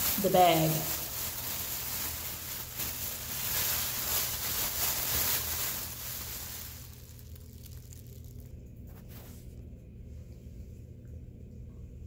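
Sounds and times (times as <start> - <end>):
plastic bag crinkling: 0.0 - 9.3.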